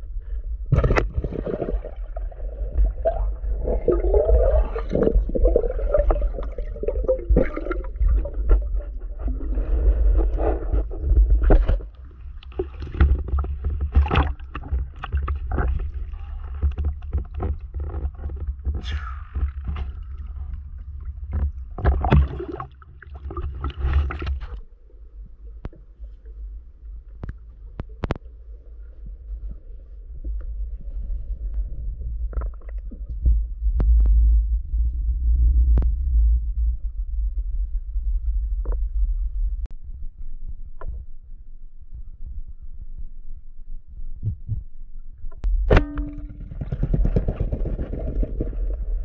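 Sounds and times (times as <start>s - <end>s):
wind rumble on microphone: 0.0s - 22.3s, 23.3s - 49.0s
underwater rumbling and knocking: 0.0s - 49.0s
water sloshing and splashing: 0.7s - 24.7s.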